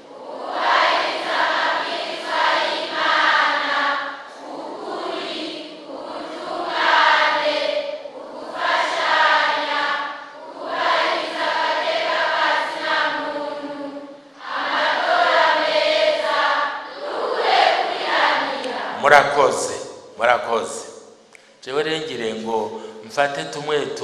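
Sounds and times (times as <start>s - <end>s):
crowd of young people chanting: 0.0s - 19.0s.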